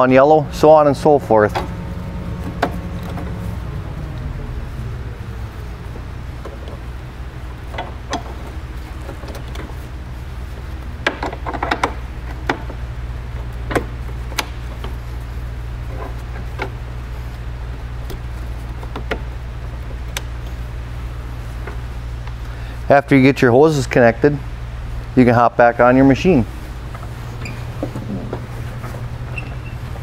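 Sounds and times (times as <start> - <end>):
steady low hum: 0.0 - 30.0
hose couplers clicking: 7.5 - 9.8, 10.8 - 12.8, 13.4 - 15.0, 18.0 - 20.6.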